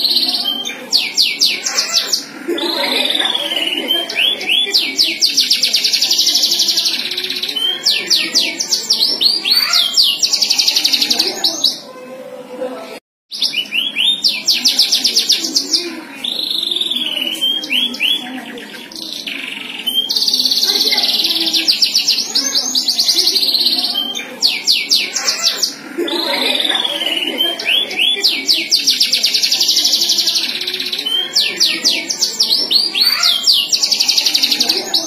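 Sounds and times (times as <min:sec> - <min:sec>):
canary singing trills: 0:00.0 - 0:11.9, 0:13.3 - 0:35.0.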